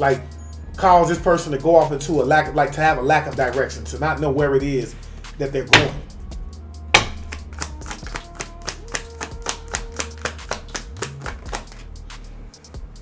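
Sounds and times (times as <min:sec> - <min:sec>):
cards being shuffled: 0:07.2 - 0:11.9.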